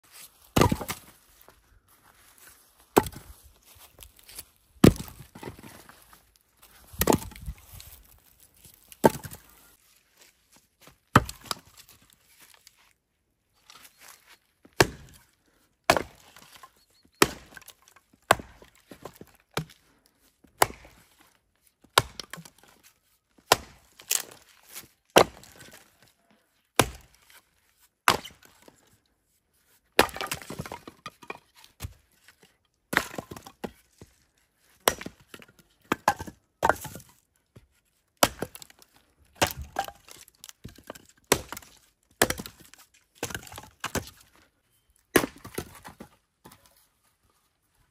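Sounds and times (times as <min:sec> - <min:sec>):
axe chopping firewood: 0:00.4 - 0:01.1, 0:02.9 - 0:03.4, 0:04.1 - 0:05.9, 0:06.8 - 0:08.0, 0:08.8 - 0:09.6, 0:11.1 - 0:11.9, 0:14.7 - 0:15.3, 0:15.9 - 0:19.8, 0:20.5 - 0:21.2, 0:21.9 - 0:22.8, 0:23.4 - 0:26.0, 0:26.7 - 0:27.4, 0:28.0 - 0:28.7, 0:30.0 - 0:32.0, 0:32.9 - 0:34.1, 0:34.7 - 0:37.1, 0:38.2 - 0:44.4, 0:45.1 - 0:46.7
wood cracking and splintering: 0:30.0 - 0:32.0, 0:38.2 - 0:44.3.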